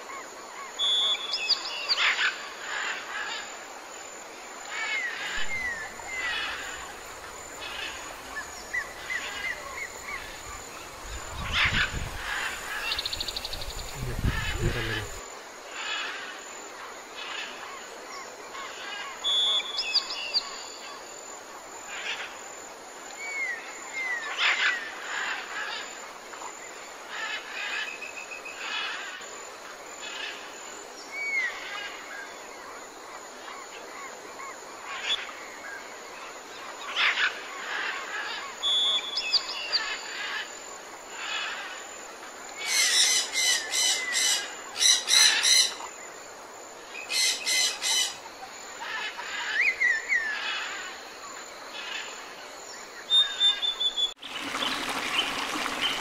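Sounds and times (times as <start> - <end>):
rapid repeated bird calls: 4.6 - 16.4, 46.9 - 56.0
birds chirping and whistling: 53.1 - 54.2.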